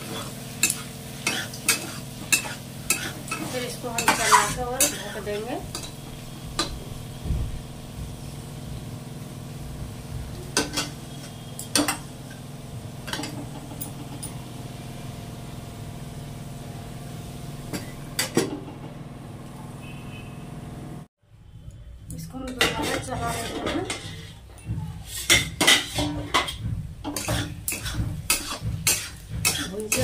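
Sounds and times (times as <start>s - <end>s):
metal spatula knocking pan: 25.3s - 30.0s.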